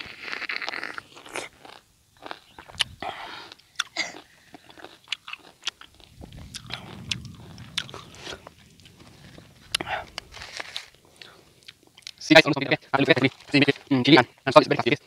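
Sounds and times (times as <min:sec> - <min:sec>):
person chewing wetly: 0:00.0 - 0:07.9.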